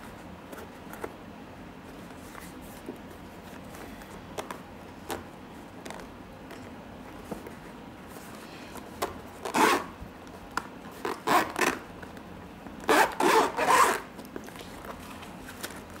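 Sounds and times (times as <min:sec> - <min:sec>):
zipper rasping on case: 0:09.4 - 0:09.9, 0:11.0 - 0:11.8, 0:12.8 - 0:14.1.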